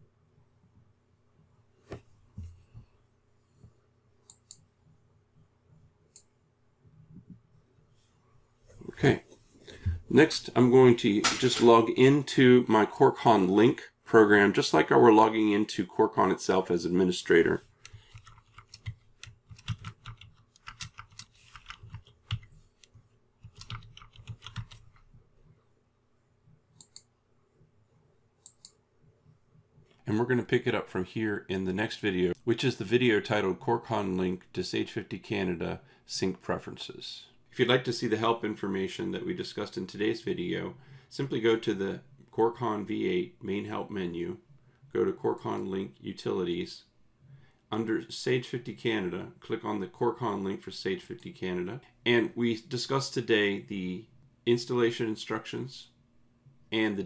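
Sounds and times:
computer mouse clicks: 17.8s - 25.0s, 28.4s - 28.8s
typing on a keyboard: 18.1s - 22.5s, 23.4s - 24.9s
faint mouse clicks: 26.8s - 27.1s.

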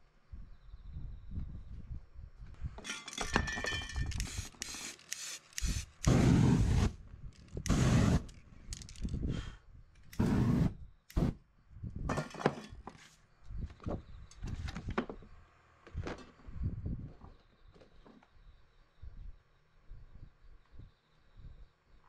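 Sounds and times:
aerosol spray paint hissing: 4.2s - 7.0s, 7.7s - 8.3s, 10.2s - 11.4s
flame rushing: 5.6s - 7.0s, 7.6s - 8.4s, 10.1s - 11.4s.

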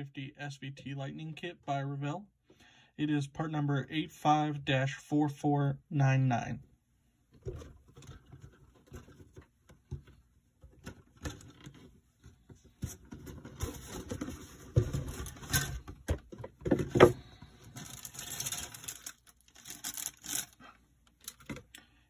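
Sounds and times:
bagged parts rustling and crinkling: 10.8s - 21.8s.

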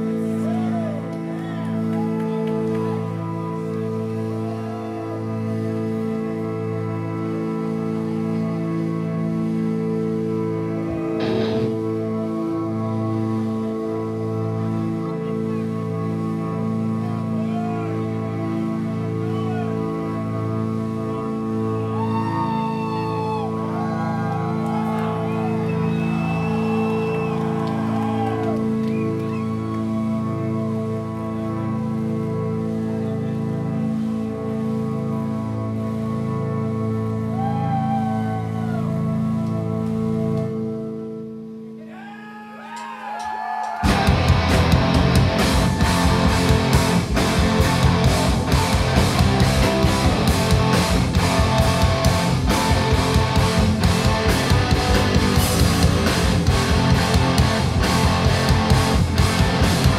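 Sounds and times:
sliding melodic guitar lead: 0.0s - 41.8s, 43.9s - 59.9s
electric guitars ringing chords: 2.9s - 41.8s, 43.9s - 59.9s
heavy metal band playing: 10.9s - 13.6s, 43.8s - 59.9s
sustained guitar chord: 11.1s - 12.3s.

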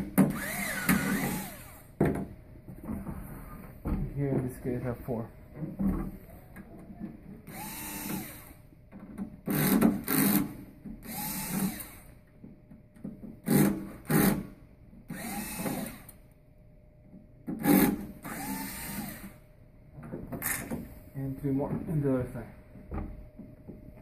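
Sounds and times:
cordless drill whining: 0.2s - 1.9s, 7.5s - 8.6s, 11.0s - 12.1s, 15.1s - 16.2s, 17.6s - 19.4s.

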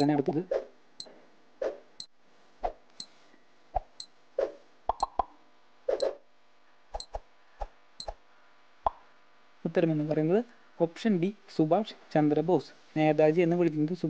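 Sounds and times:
timer pops and clicks: 0.0s - 0.3s, 4.9s - 5.3s.

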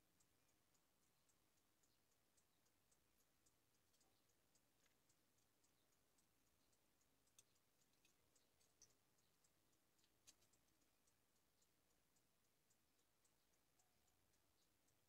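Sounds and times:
small ticks and clicks: 0.0s - 15.0s.

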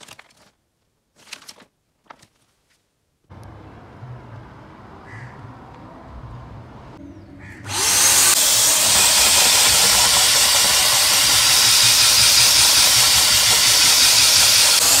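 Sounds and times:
vacuum cleaner running: 7.7s - 15.0s.

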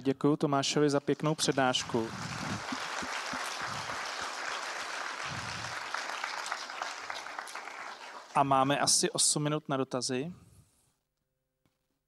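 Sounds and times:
audience applauding: 1.1s - 8.6s.

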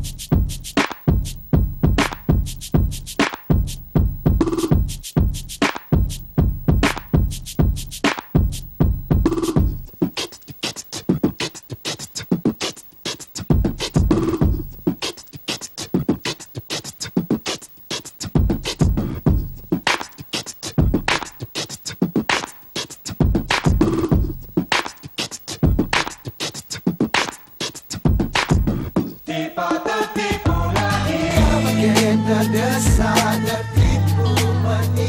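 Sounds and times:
beatboxing: 0.0s - 35.0s.

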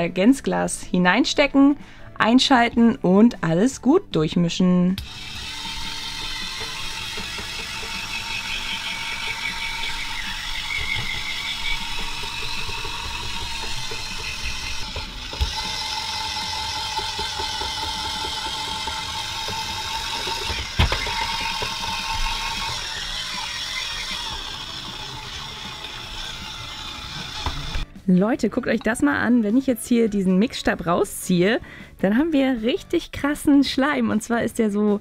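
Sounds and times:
small electric motor whirring: 5.0s - 27.8s.

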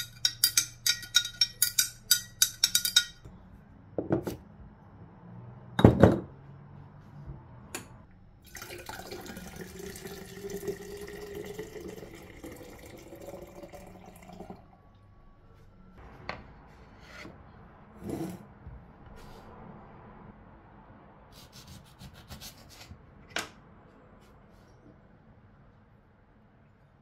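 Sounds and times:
water pouring into glass carafe: 8.4s - 14.7s.

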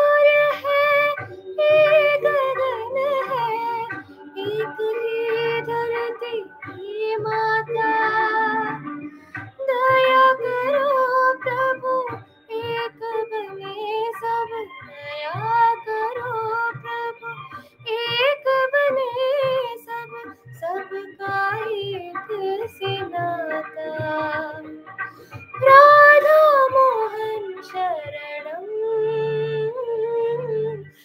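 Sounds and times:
woman singing: 0.0s - 31.0s
singer breathing: 9.1s - 9.4s.

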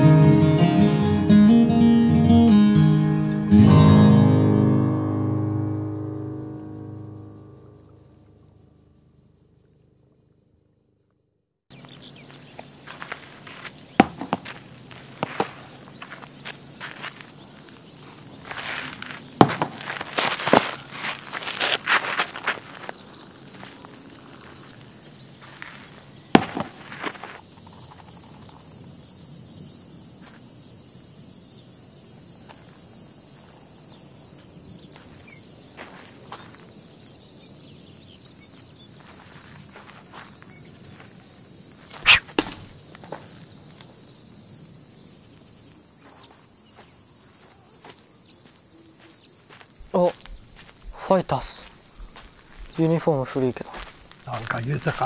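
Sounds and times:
insects droning: 0.0s - 55.0s
sharp knocks: 14.0s - 14.6s, 26.4s - 26.8s, 42.0s - 42.8s.

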